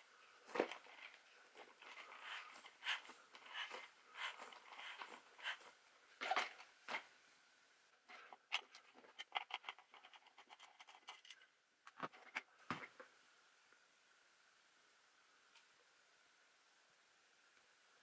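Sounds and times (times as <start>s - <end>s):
rubber tire rubbing and scratching: 0.5s - 6.6s.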